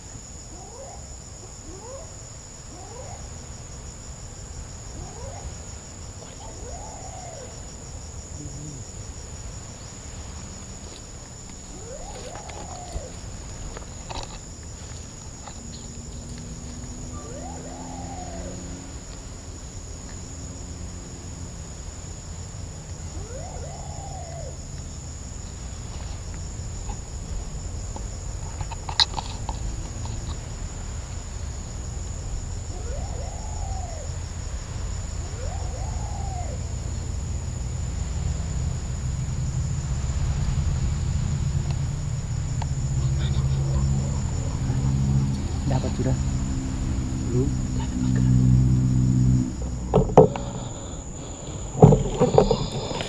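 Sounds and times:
insects trilling: 0.0 - 53.0
bird calling: 0.5 - 3.5, 4.9 - 9.1, 9.8 - 19.4, 22.9 - 27.5, 32.6 - 37.2, 42.6 - 53.0.

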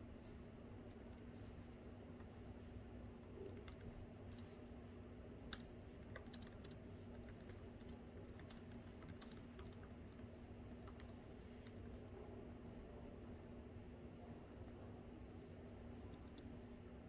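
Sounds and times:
low steady hum: 0.0 - 17.0
typing on laptop keyboard: 3.4 - 4.5, 5.5 - 11.9.

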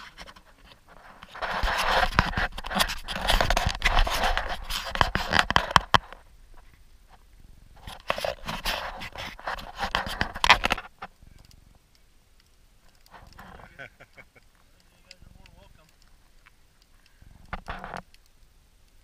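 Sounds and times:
camera handling rustling: 0.1 - 6.2, 7.8 - 11.1.

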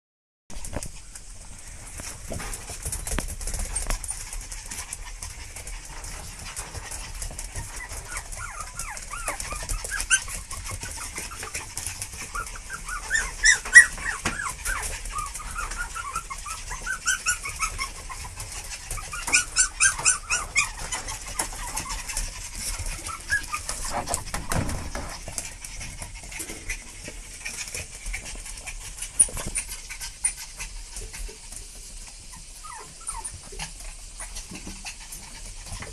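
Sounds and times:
puppies whimpering: 7.5 - 24.2, 32.3 - 34.7.

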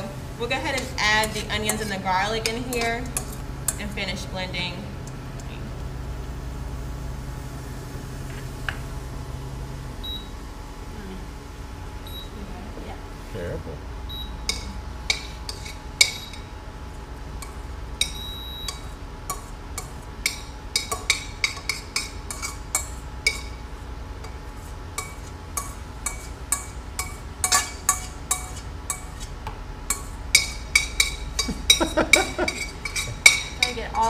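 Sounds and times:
low steady hum: 0.0 - 34.0
metal utensil scraping saucepan: 20.3 - 23.6, 25.0 - 34.0.

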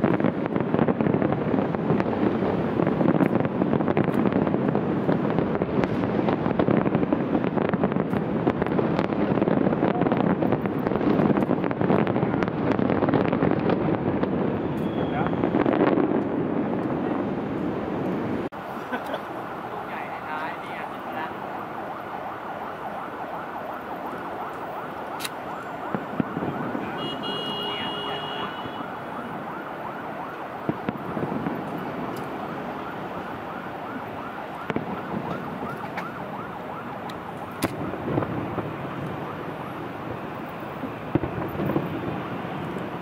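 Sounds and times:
distant fireworks bangs: 0.0 - 43.0.

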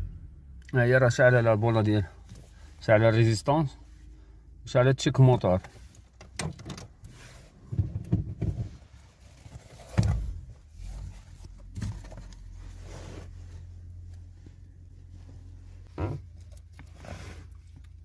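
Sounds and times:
thumps and knocks in car cabin: 7.6 - 9.0, 9.7 - 10.6, 15.8 - 16.3.

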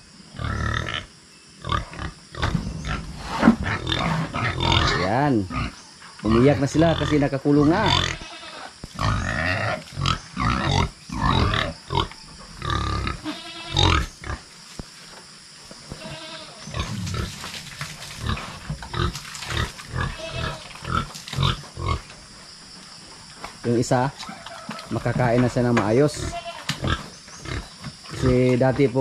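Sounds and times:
pigs squealing: 0.4 - 14.4, 18.2 - 22.0, 26.0 - 28.3.

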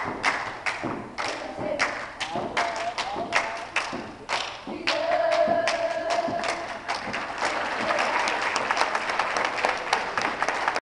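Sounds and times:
audience applauding: 6.1 - 10.8.

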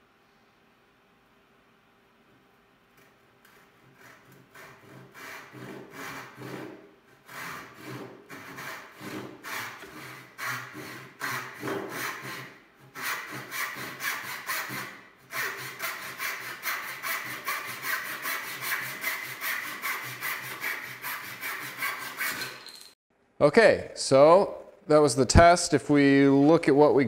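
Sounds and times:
hand saw cutting wood: 3.5 - 22.7.

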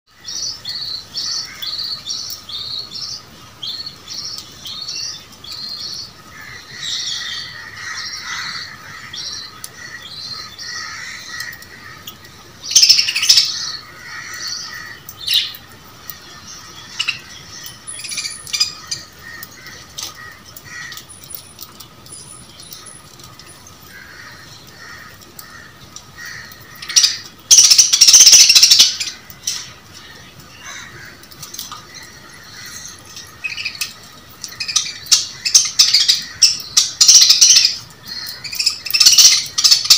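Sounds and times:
budgerigars chirping and warbling: 12.6 - 21.5, 34.6 - 39.9.

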